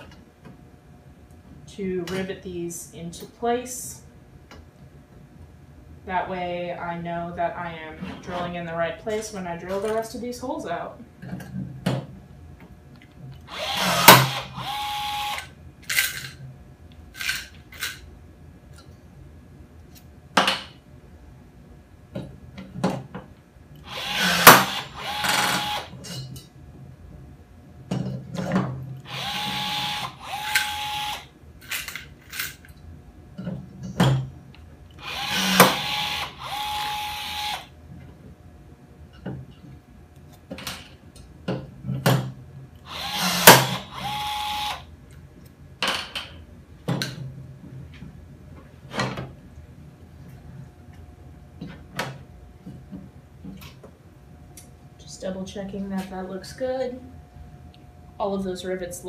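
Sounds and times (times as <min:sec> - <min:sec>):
rivet gun motor whirring: 0:13.5 - 0:15.5, 0:23.8 - 0:25.9, 0:29.0 - 0:31.3, 0:35.0 - 0:37.7, 0:42.9 - 0:44.9.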